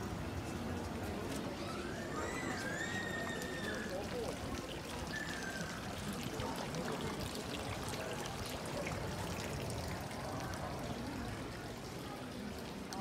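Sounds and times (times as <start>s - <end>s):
faint voices of passers-by: 0.0s - 13.0s
water pouring into fountain trough: 0.6s - 13.0s.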